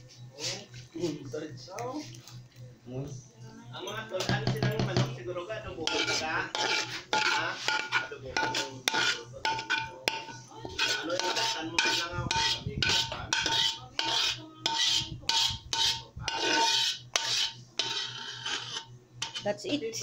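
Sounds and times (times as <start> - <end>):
spatula scraping a pan: 5.7 - 20.0.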